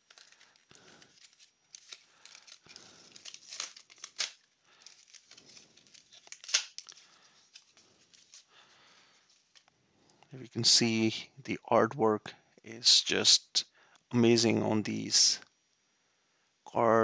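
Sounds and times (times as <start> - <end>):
blister pack tearing and crinkling: 0.0 - 8.5.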